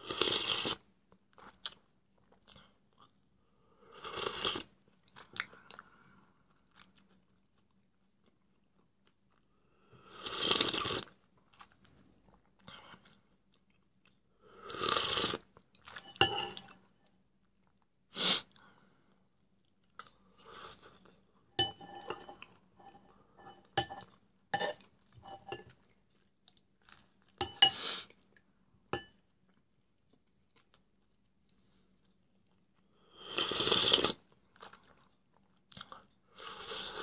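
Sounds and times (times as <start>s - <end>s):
metal spoon clinking on bowl: 16.0s - 16.8s, 21.6s - 25.7s, 27.4s - 27.8s.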